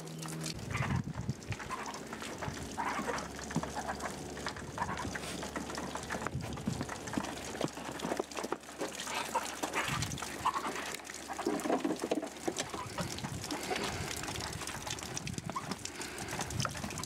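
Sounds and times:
chickens clucking: 1.6 - 6.3, 8.8 - 14.3.

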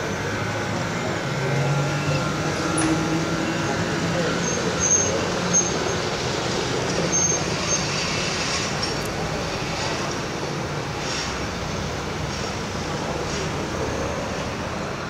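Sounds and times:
tram and cars driving past: 0.0 - 15.0
short high squeak: 4.4 - 6.1, 7.1 - 8.1.

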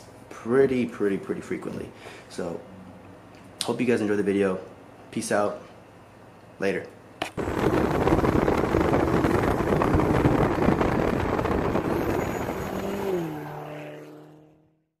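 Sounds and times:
car driving past: 11.6 - 14.9.

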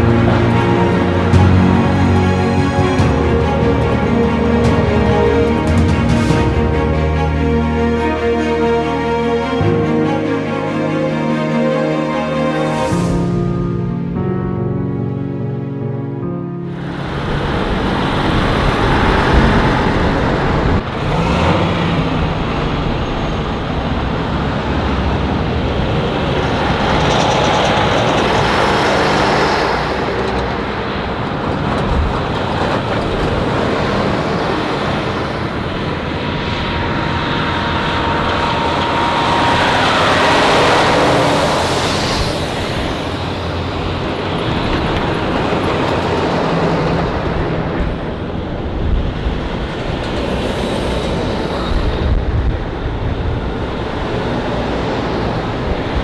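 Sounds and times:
trucks driving past: 0.0 - 14.5, 16.6 - 56.0
steady whine: 32.9 - 56.0.

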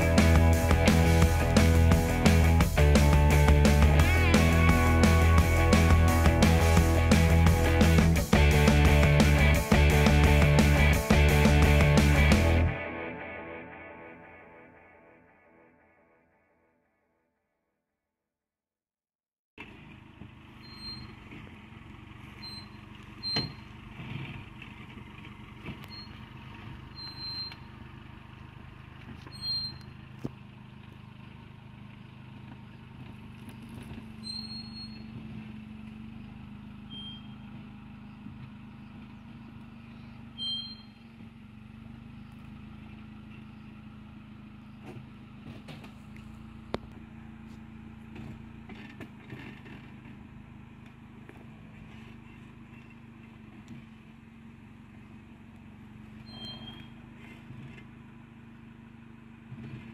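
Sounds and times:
car engine running: 0.0 - 14.3, 19.6 - 59.9
short high chirps: 34.2 - 35.1, 40.4 - 41.0, 56.3 - 56.9.

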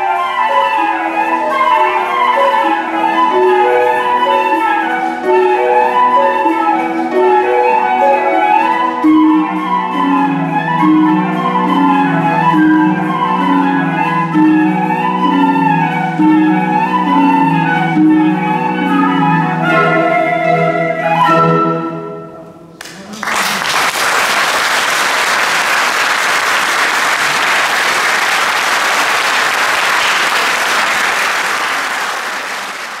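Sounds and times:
flute melody: 0.0 - 22.8
harp playing low notes: 0.0 - 22.8
audience applause: 22.8 - 33.0.

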